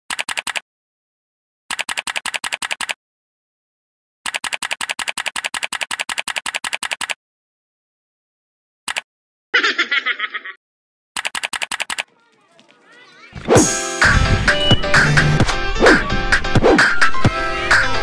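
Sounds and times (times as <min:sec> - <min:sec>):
rapid keyboard typing clicks: 0:00.1 - 0:00.6, 0:01.7 - 0:03.0, 0:04.3 - 0:07.2, 0:11.2 - 0:12.2.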